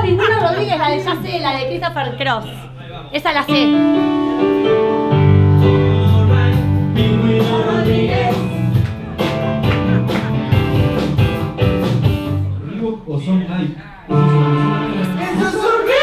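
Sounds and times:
electric guitar: 3.5s - 12.6s
bass guitar: 3.6s - 13.2s
person singing: 5.5s - 8.8s, 14.1s - 16.0s
drum hits: 6.1s - 12.5s.

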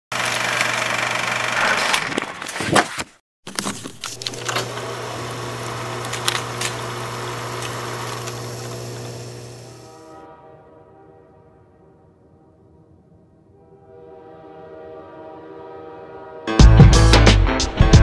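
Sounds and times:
film projector whirring: 0.1s - 2.3s, 3.5s - 10.0s
film crackle and clicks: 3.5s - 9.8s.

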